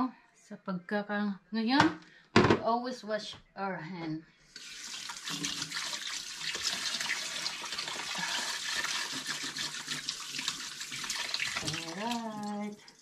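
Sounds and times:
tap water running into sink: 0:04.6 - 0:13.0.

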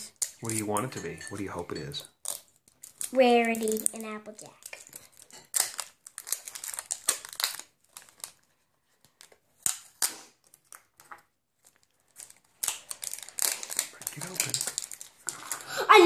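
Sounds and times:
plastic wrap crinkling: 0:00.0 - 0:00.9, 0:01.5 - 0:16.0.

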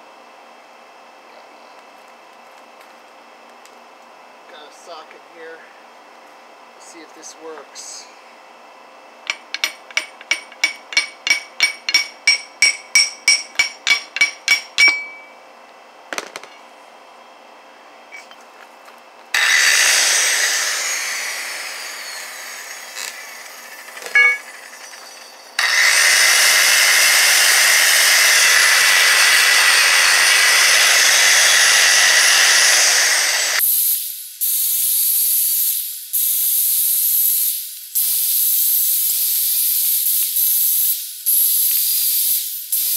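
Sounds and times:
angle grinder grinding steel: 0:09.3 - 0:15.4, 0:19.3 - 0:33.6
hammer blows on steel: 0:09.3 - 0:15.4, 0:24.1 - 0:24.6.

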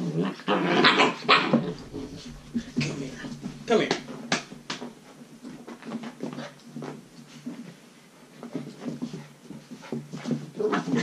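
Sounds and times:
puppies scratching on carpet: 0:01.5 - 0:11.0.

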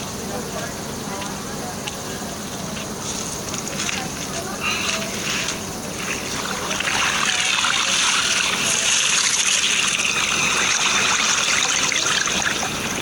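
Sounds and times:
wet gushing slithering effect: 0:04.8 - 0:13.0.

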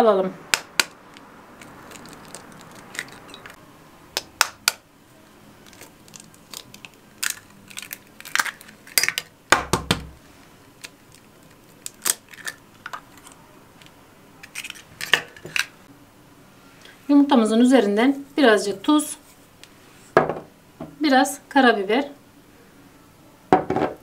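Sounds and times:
eggs cracking against ceramic bowl: 0:00.5 - 0:03.6, 0:05.6 - 0:09.9, 0:10.7 - 0:13.4.

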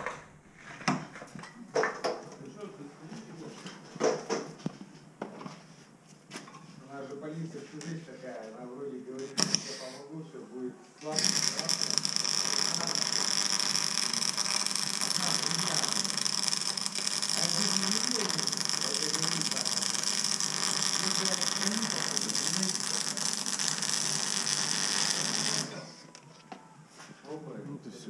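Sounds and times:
arc welding sputtering hiss: 0:09.3 - 0:10.0, 0:11.1 - 0:26.0.

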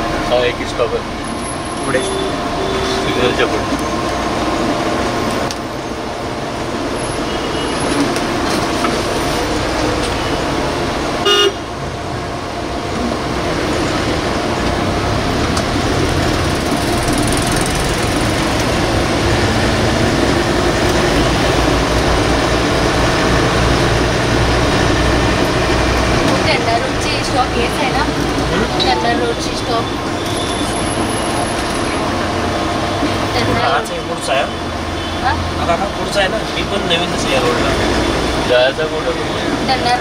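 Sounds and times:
street traffic from inside bus: 0:00.0 - 0:40.0
vehicle horn toot: 0:01.8 - 0:03.3, 0:07.2 - 0:08.0, 0:11.2 - 0:11.7.

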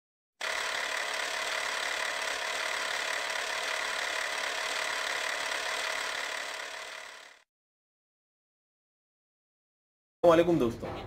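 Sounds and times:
film projector whirring: 0:00.4 - 0:07.5.

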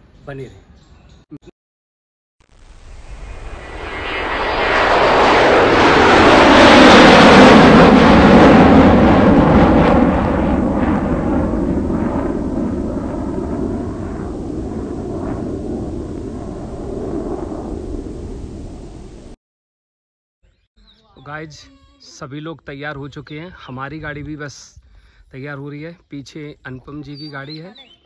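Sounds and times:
loud rushing rumble: 0:02.6 - 0:19.4.

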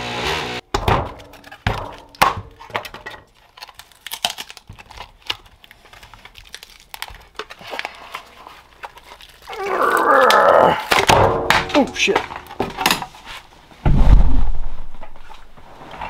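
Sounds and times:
plastic crinkling: 0:01.2 - 0:11.1.

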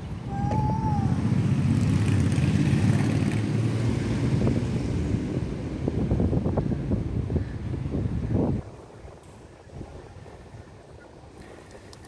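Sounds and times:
vehicle engine passing: 0:00.7 - 0:06.5.

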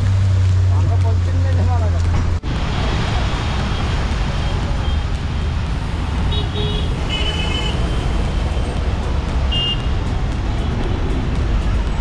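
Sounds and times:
city traffic rumble: 0:00.0 - 0:12.0.

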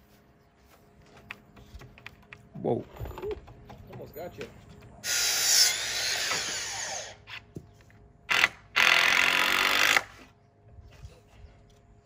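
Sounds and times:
power drill running: 0:08.3 - 0:10.2.

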